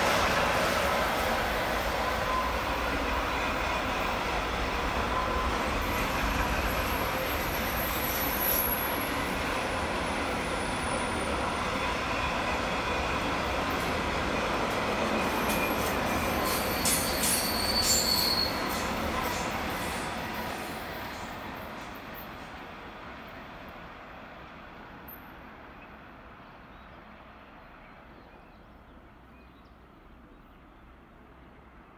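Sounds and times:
train wheels rolling on rail: 0:00.0 - 0:26.5
wheel squeals and clicks: 0:15.4 - 0:18.8.

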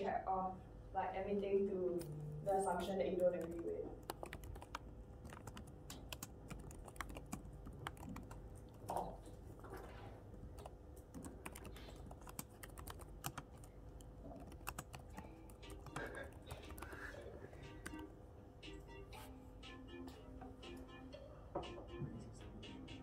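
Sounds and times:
keyboard typing: 0:02.0 - 0:09.2, 0:10.4 - 0:18.1.

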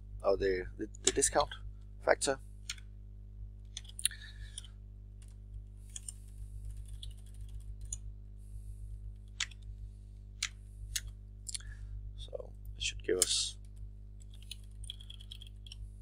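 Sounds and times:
steady low hum: 0:00.0 - 0:16.0
keyboard typing: 0:03.7 - 0:08.0, 0:13.6 - 0:15.8.

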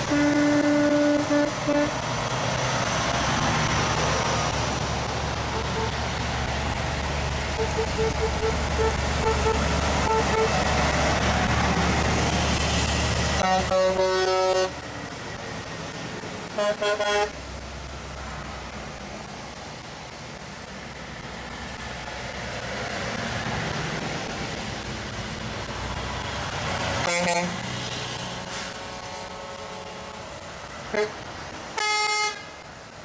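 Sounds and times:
truck air horn: 0:00.0 - 0:02.0, 0:05.5 - 0:06.0, 0:07.5 - 0:10.6, 0:13.4 - 0:14.8, 0:16.5 - 0:17.4, 0:27.0 - 0:27.6, 0:30.9 - 0:31.2, 0:31.8 - 0:32.6
trucks driving past: 0:00.0 - 0:33.0
tyres hissing on wet road: 0:00.0 - 0:33.0.

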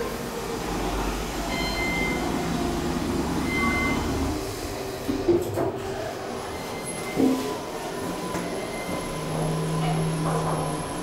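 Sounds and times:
elevator doors closing: 0:00.0 - 0:11.0
elevator rumbling: 0:00.0 - 0:11.0
short electronic beeps: 0:01.5 - 0:02.2, 0:03.5 - 0:04.1.

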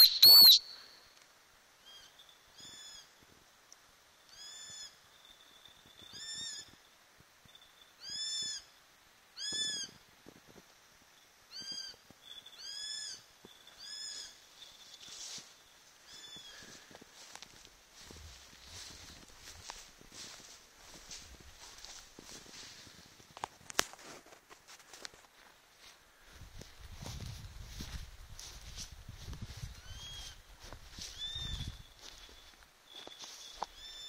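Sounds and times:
hawk calling: 0:00.0 - 0:00.8.

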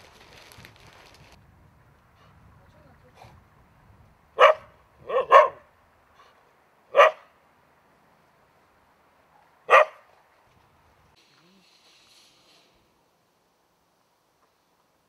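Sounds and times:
dog barking: 0:04.4 - 0:06.3, 0:06.9 - 0:07.3, 0:09.7 - 0:10.0.

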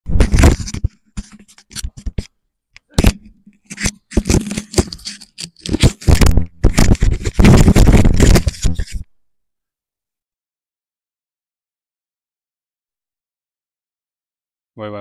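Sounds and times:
microphone handling noise: 0:00.0 - 0:02.3, 0:02.9 - 0:09.1
rubbing scraping and knocking: 0:00.1 - 0:02.3, 0:02.9 - 0:09.1.

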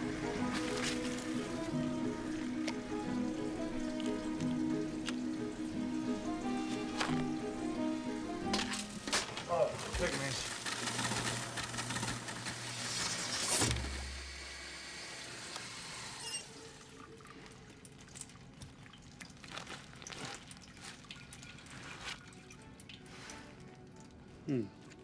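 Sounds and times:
water running into sink: 0:00.0 - 0:11.4.

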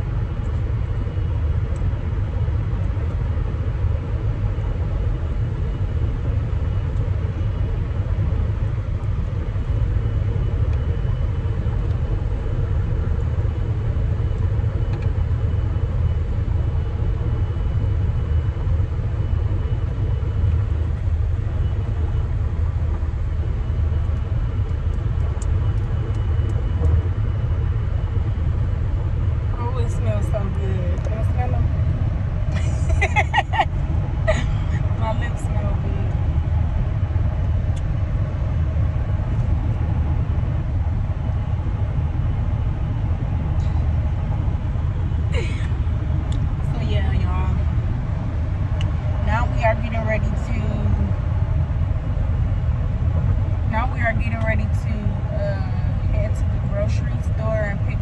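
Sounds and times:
car cabin rumble: 0:18.2 - 0:58.0.

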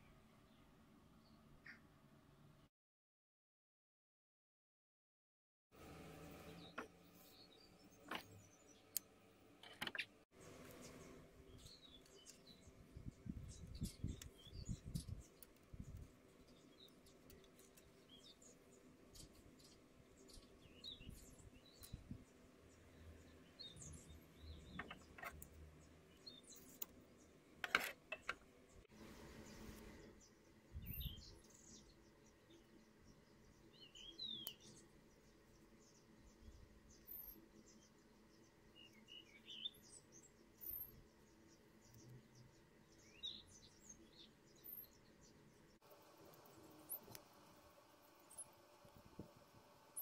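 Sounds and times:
small birds chirping: 0:06.2 - 0:50.0.

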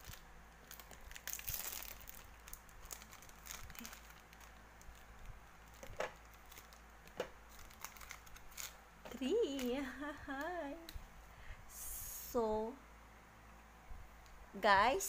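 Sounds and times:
plastic wrappers crinkling: 0:00.0 - 0:10.7.

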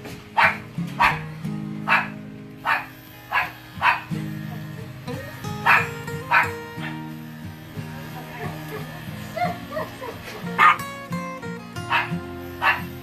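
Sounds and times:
background music: 0:00.0 - 0:13.0
dog barking: 0:00.4 - 0:01.3, 0:01.9 - 0:04.1, 0:05.6 - 0:07.1, 0:09.4 - 0:10.9, 0:11.9 - 0:13.0.

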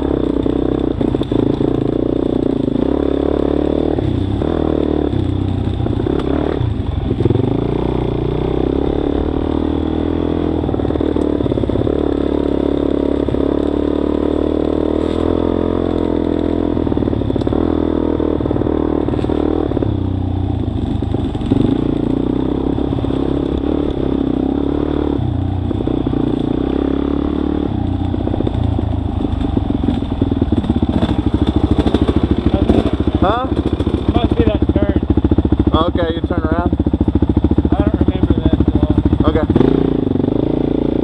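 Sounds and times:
dirt bike engine revving: 0:00.0 - 0:41.0.

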